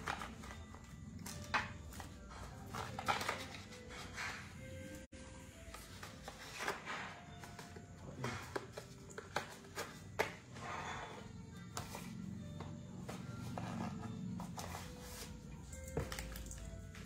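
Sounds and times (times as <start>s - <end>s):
packaging clicks and rustles: 0.0s - 4.2s, 13.1s - 17.0s.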